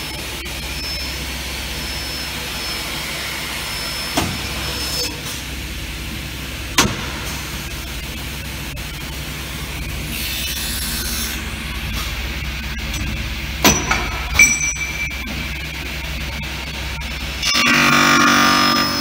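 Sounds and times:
high-pitched machine whine: 0.0 - 19.0
sharp mechanical knocks: 6.8 - 7.4
machine motor hum: 15.1 - 19.0.

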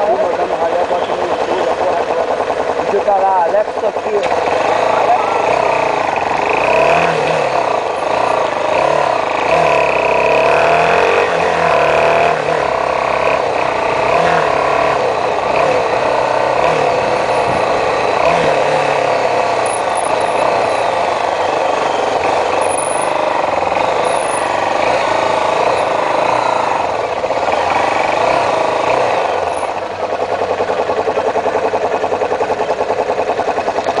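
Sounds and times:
motorcycle engine: 0.0 - 34.0
surrounding car traffic: 0.0 - 34.0.

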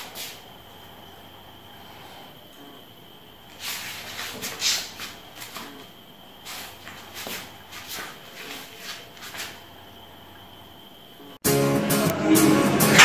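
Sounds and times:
man breathing and rustling: 0.0 - 2.5, 3.4 - 9.9.

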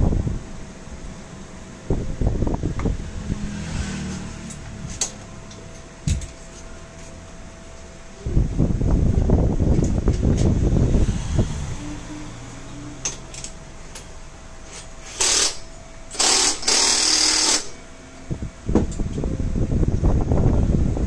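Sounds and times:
impact wrench rattling: 14.6 - 17.8.

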